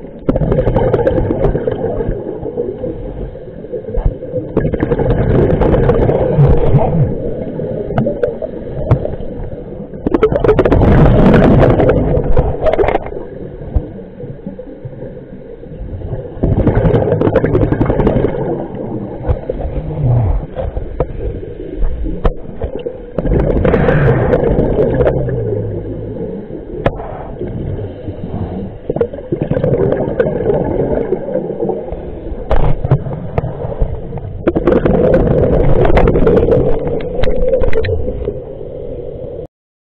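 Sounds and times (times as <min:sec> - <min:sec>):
underwater bubbles gurgling: 0:00.0 - 0:39.5.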